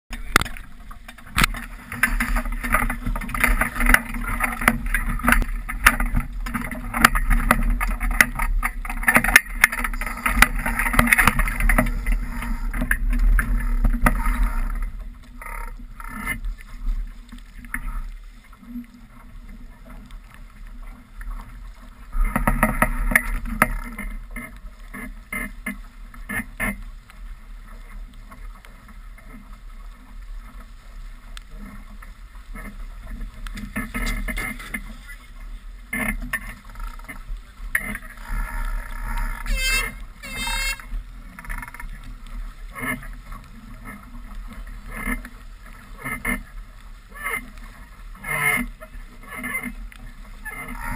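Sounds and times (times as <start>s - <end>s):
knocks and splashes: 0.1s - 15.1s
wind and water rushing: 0.1s - 50.9s.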